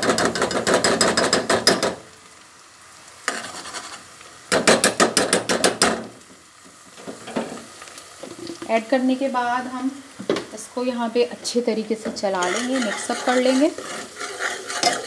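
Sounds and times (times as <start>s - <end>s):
onions sizzling: 0.0s - 15.0s
metal spoon scraping a pot: 12.2s - 15.0s.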